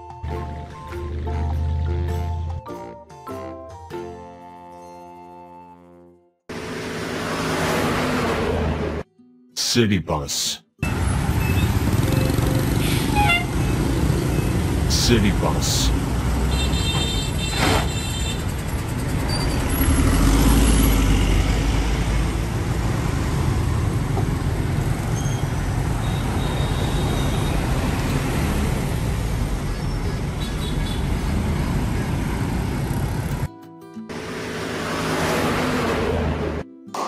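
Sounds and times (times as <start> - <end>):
motorbikes passing: 0.5 - 2.4, 6.5 - 9.0, 10.8 - 33.5, 34.1 - 36.6
bus engines rumbling: 6.5 - 9.0, 9.6 - 33.5, 34.1 - 36.6.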